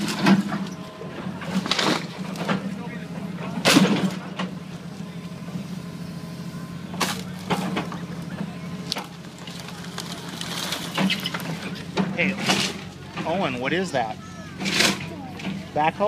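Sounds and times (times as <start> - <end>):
diesel engine drone: 0.0 - 16.0
wood frame cracking and crashing: 9.0 - 11.5.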